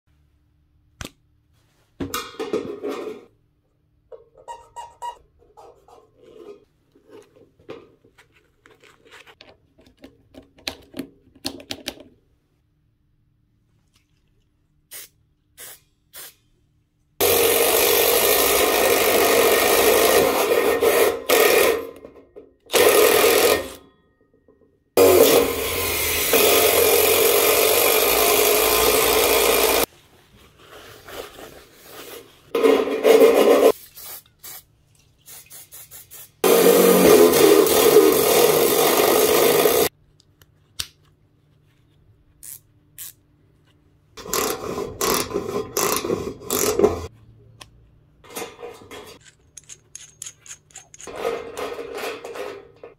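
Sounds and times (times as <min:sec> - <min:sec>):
power driver cutting through steel: 0:17.2 - 0:21.9, 0:22.7 - 0:23.8, 0:25.0 - 0:29.9, 0:36.4 - 0:39.9
metallic clinks and rattles: 0:49.2 - 0:51.2.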